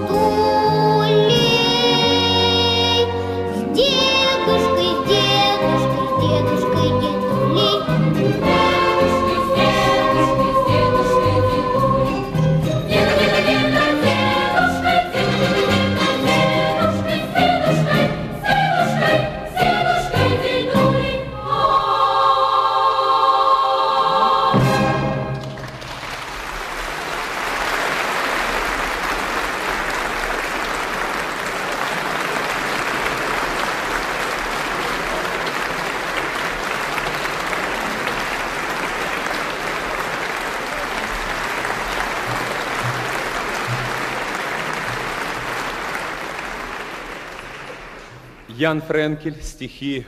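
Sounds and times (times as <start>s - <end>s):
audience applauding: 25.4s - 48.6s.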